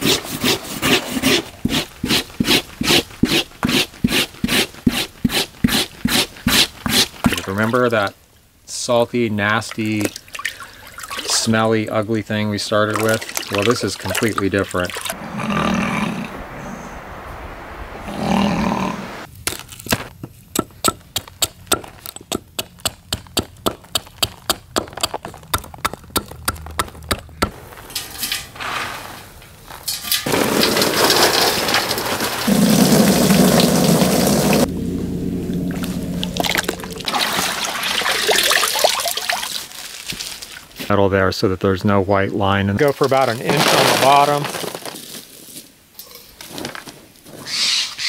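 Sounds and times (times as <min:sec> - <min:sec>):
water sloshing in bucket: 0:09.7 - 0:11.7, 0:12.7 - 0:15.2, 0:35.8 - 0:40.9
water splashing and pouring: 0:09.7 - 0:11.7, 0:12.7 - 0:19.3, 0:30.2 - 0:34.7, 0:35.5 - 0:40.8
sharp evenly spaced knocks: 0:20.5 - 0:27.6.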